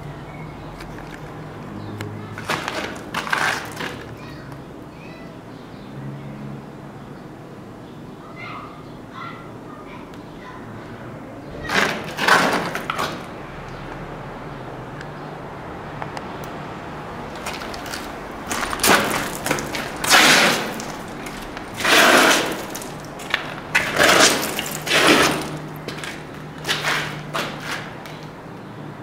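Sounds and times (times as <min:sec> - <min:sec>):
footsteps crunching on rubble: 0:02.3 - 0:04.2, 0:11.6 - 0:13.3, 0:17.3 - 0:28.4.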